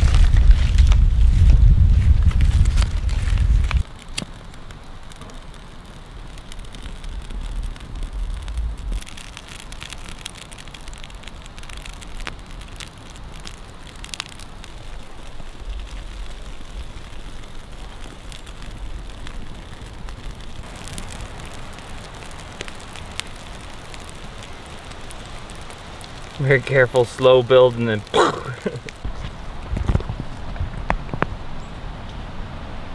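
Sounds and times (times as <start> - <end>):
low rumble: 0.0 - 3.9, 6.6 - 9.2
kindling crackling and snapping: 0.0 - 32.2
steady hiss: 0.0 - 32.8.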